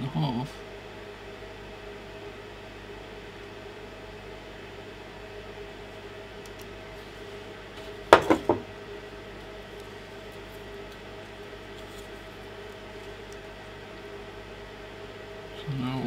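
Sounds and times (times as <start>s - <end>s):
steady low hum: 0.0s - 16.0s
magnifier knocking on desk: 8.1s - 8.7s.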